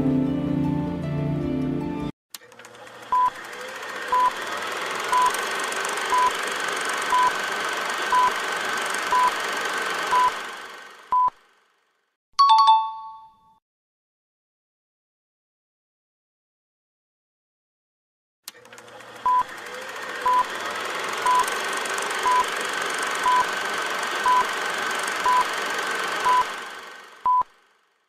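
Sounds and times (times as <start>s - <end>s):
music: 0.0s - 2.1s.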